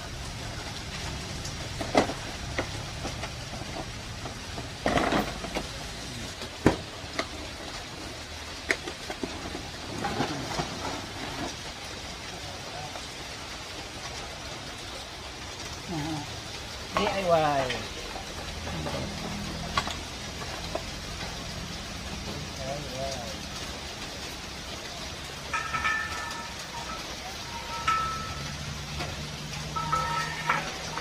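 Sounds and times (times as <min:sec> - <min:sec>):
steady rushing hiss: 0:00.0 - 0:31.0
metal clatter: 0:01.6 - 0:05.9, 0:25.5 - 0:31.0.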